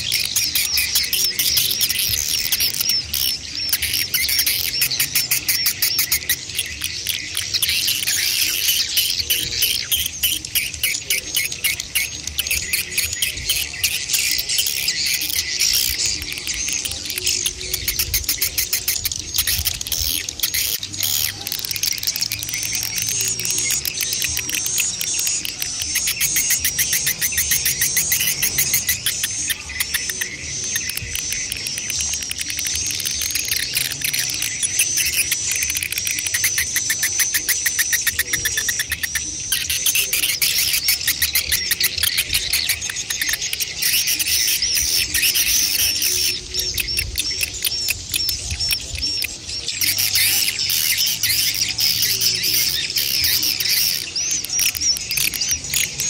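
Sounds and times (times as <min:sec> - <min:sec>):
rapid high clicking ticks: 0:00.0 - 0:56.0
shrill twittering bird chirps: 0:00.0 - 0:56.0.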